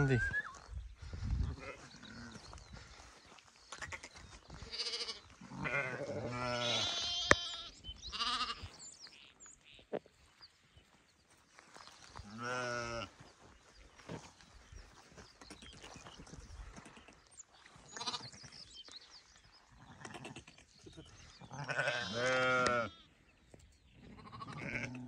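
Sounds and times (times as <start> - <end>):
sheep and lambs bleating: 1.3 - 2.8, 3.7 - 8.8, 12.2 - 13.2, 17.8 - 18.5, 19.6 - 23.2, 24.0 - 25.0.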